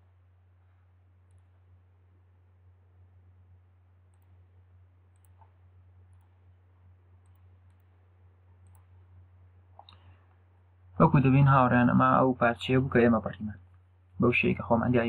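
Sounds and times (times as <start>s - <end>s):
steady low hum: 0.0s - 15.0s
computer mouse clicks: 1.2s - 1.5s, 4.1s - 4.4s, 5.1s - 6.4s, 7.2s - 8.0s, 8.6s - 9.0s.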